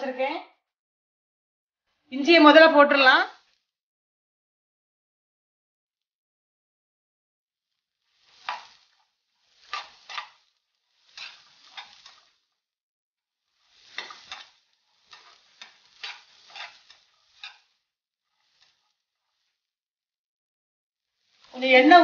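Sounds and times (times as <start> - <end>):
spatula scraping frying pan: 7.8 - 12.6, 13.4 - 19.7, 21.1 - 21.6.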